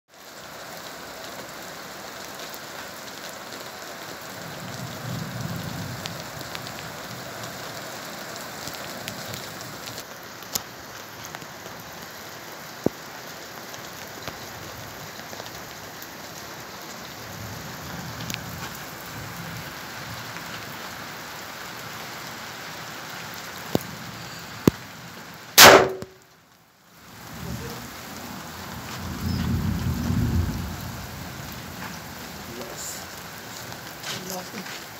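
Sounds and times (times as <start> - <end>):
steady rain-like hiss: 0.1 - 34.9
loud sharp bang: 25.6 - 26.2.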